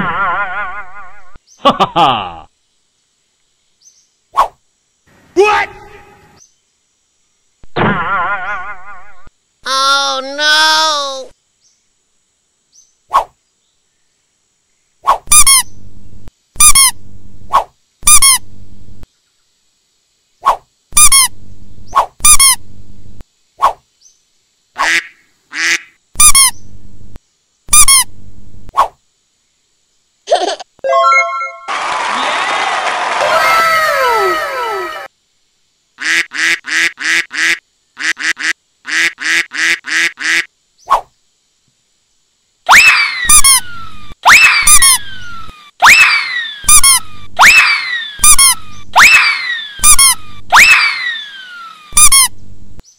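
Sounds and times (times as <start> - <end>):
low steady buzz: 0.0 - 15.0, 15.6 - 22.0, 22.6 - 30.8, 34.9 - 42.7, 52.3 - 52.9
rubber duck squeaks: 15.3 - 15.7, 16.6 - 17.0, 18.1 - 18.4, 21.0 - 21.3, 22.2 - 22.6, 26.2 - 26.6, 27.7 - 28.1, 42.7 - 52.4
duck quacking: 24.8 - 26.5, 36.0 - 40.5.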